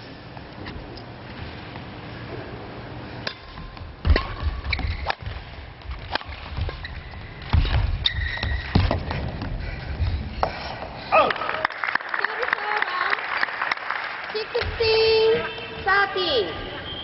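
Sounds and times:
racket striking shuttlecock: 3.2 - 9.1
footsteps thudding: 3.6 - 10.9
shoe squeaks on court floor: 4.6 - 5.1, 8.0 - 8.8.

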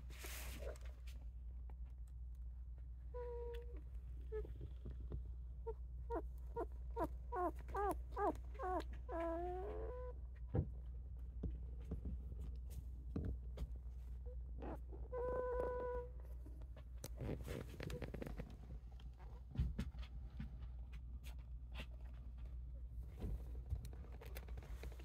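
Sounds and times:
faint rustles and soft knocks: 0.0 - 5.6, 6.2 - 25.0
puppies squeaking and whining: 6.1 - 10.1.

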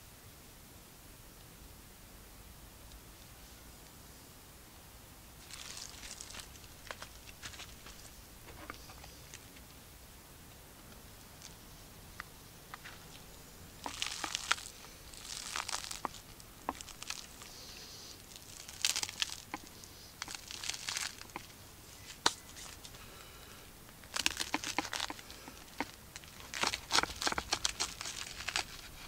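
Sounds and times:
bread crust crackling and crunching: 5.4 - 9.7, 12.7 - 29.0.

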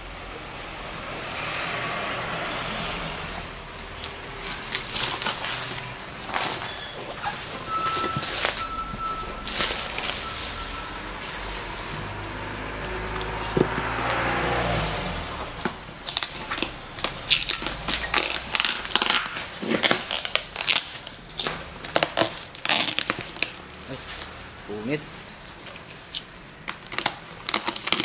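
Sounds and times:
engine hum: 0.0 - 26.7
plastic wrapping crinkling: 3.5 - 14.2, 15.5 - 28.0
packing tape tearing: 3.8 - 12.2, 15.6 - 24.7, 25.4 - 28.0.

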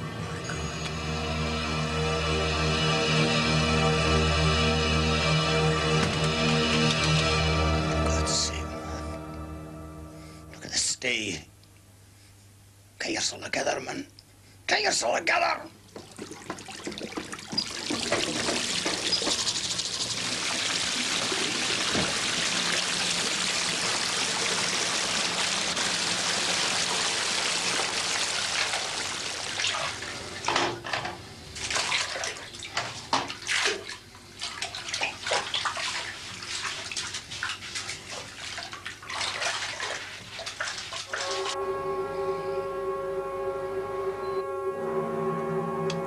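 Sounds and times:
bath water splashing: 15.8 - 30.5, 31.6 - 41.6
water running into bathtub: 15.8 - 30.9, 31.5 - 41.6.

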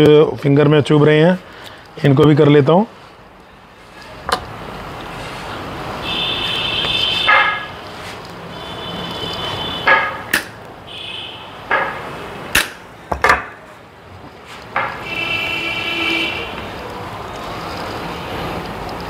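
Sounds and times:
cutting pliers snipping metal: 10.3 - 10.7, 12.5 - 12.8.

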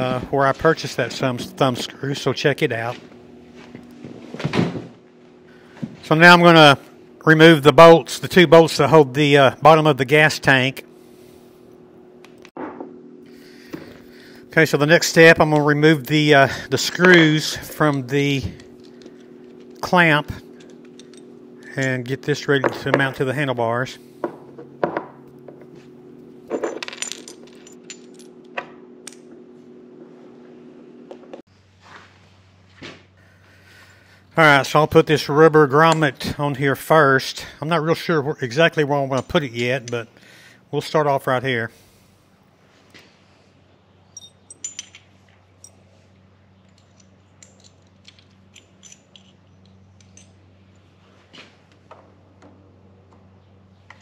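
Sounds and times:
steady low hum: 0.0 - 54.0
small screws clinking: 16.8 - 23.3, 26.5 - 28.5, 44.1 - 45.9, 46.6 - 51.0
light metallic clicks and clinks: 44.1 - 45.9, 46.6 - 50.9.

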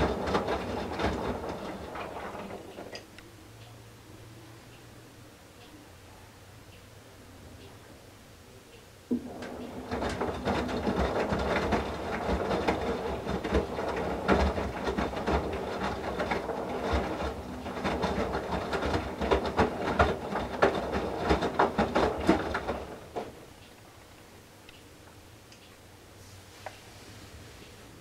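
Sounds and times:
washing machine motor hum: 0.0 - 4.4, 9.1 - 23.6.

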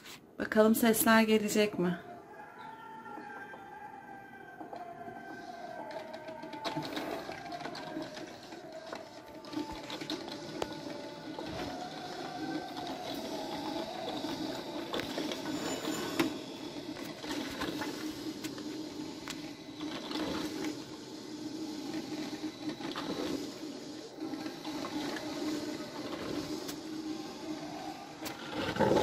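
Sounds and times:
coffee maker gurgling: 4.6 - 29.0
steady hiss: 10.5 - 29.0.

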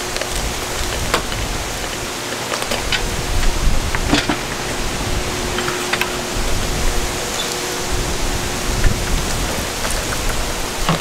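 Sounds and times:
wind gusting on microphone: 0.0 - 11.0.

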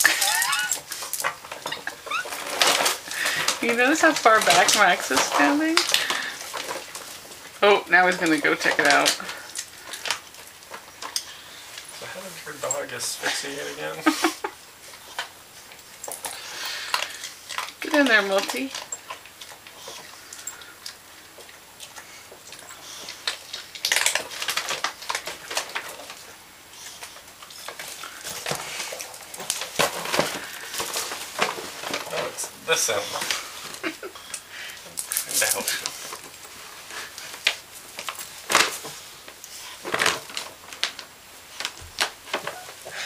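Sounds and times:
plastic bag crinkling: 0.0 - 14.5, 22.1 - 34.1, 34.7 - 43.0.

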